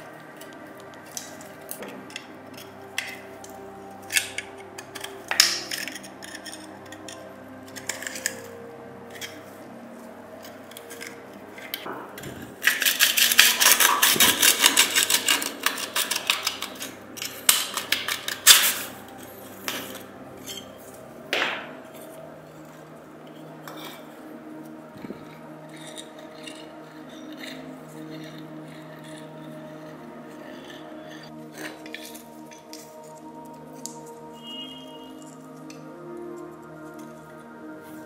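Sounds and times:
hand tools scraping rusted metal: 0.0s - 33.2s.

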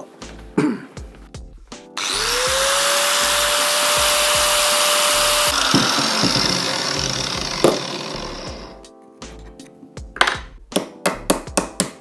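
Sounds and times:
angle grinder whine: 2.0s - 8.8s
grinding metal: 2.0s - 8.8s.

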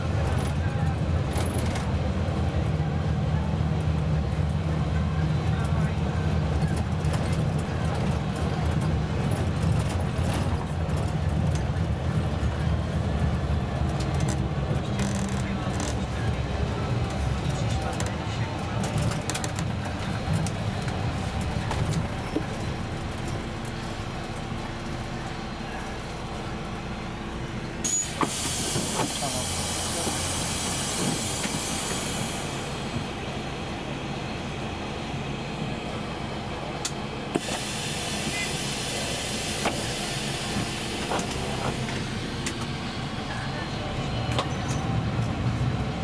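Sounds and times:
bus engine rumble: 0.0s - 46.0s
hissing air: 37.4s - 41.6s.

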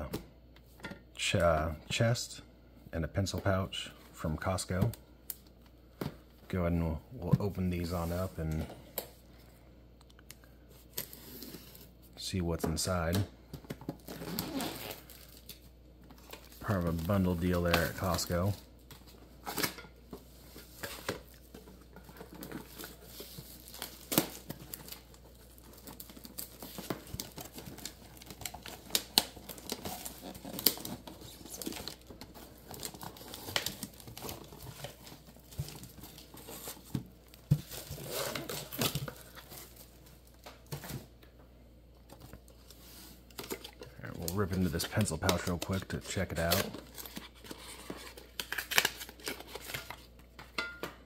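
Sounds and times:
plastic shrink wrap crinkling: 14.0s - 41.0s, 42.0s - 50.4s.

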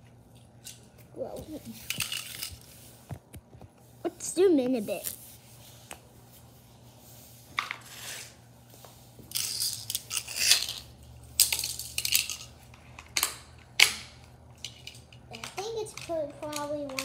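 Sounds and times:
plastic track pieces clattering: 9.3s - 10.8s, 11.4s - 12.5s.

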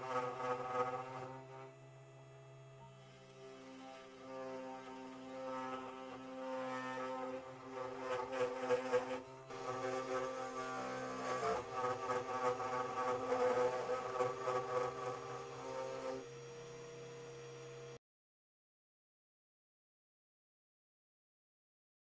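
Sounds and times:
end mill cutting wood: 0.0s - 1.7s, 2.9s - 18.0s
router spindle motor whine: 0.0s - 18.0s.

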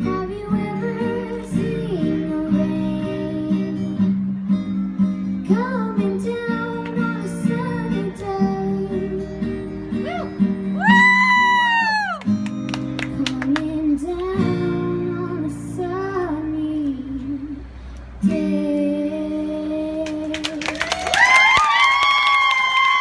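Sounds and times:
girl singing: 0.0s - 4.1s, 5.4s - 10.4s, 13.1s - 20.9s
strummed acoustic guitar: 0.0s - 11.6s, 12.2s - 19.6s
audience clapping: 12.2s - 13.6s, 20.1s - 23.0s.

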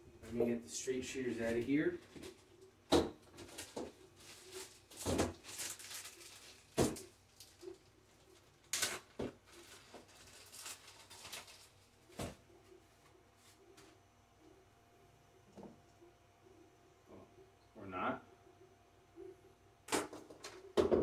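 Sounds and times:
packaging rustling: 3.2s - 12.4s.

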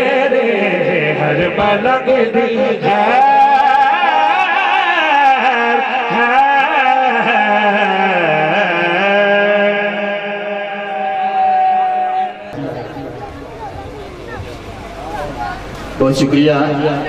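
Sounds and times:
person singing devotional song: 0.0s - 12.6s.

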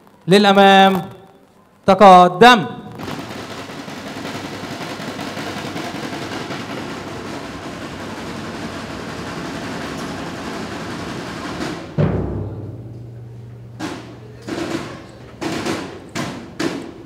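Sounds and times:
drum roll: 2.9s - 17.0s
drum strokes: 2.9s - 17.0s
bass drum hit: 11.9s - 14.9s.

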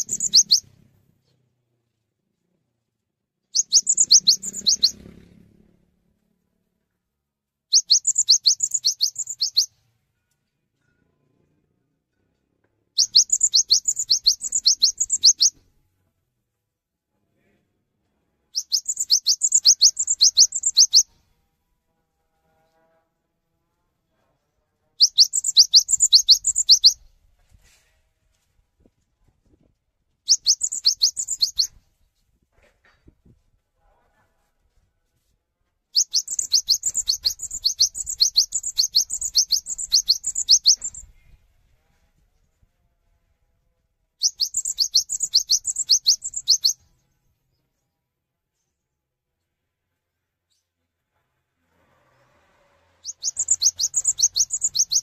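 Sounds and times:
bird chirping rapidly: 0.0s - 0.7s, 3.5s - 5.2s, 7.7s - 9.8s, 13.0s - 15.6s, 18.6s - 21.2s, 25.0s - 27.1s, 30.3s - 31.8s, 35.9s - 41.2s, 44.2s - 46.8s, 53.0s - 55.0s.

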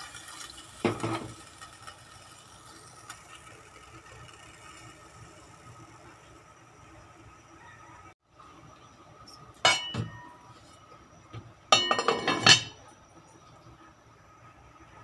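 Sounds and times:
faint steady hum: 0.0s - 15.0s
pot lid clinking onto pot: 9.7s - 10.3s, 11.8s - 12.8s.

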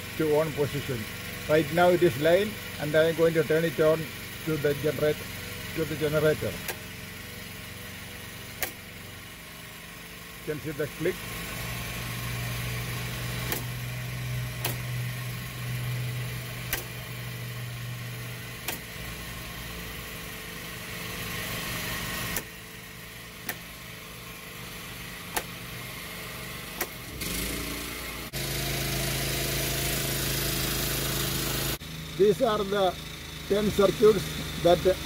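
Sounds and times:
portable generator running: 0.0s - 35.0s
rocker switches clicking: 8.6s - 8.8s, 13.4s - 13.8s, 16.7s - 17.0s, 18.6s - 18.9s, 23.4s - 23.7s, 25.3s - 25.6s, 26.8s - 27.0s.

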